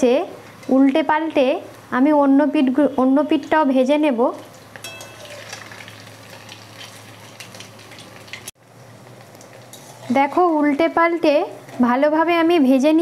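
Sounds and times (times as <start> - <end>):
fritters sizzling in hot oil: 4.4 - 12.0
metal spatula turning food: 4.7 - 8.6, 9.4 - 11.0.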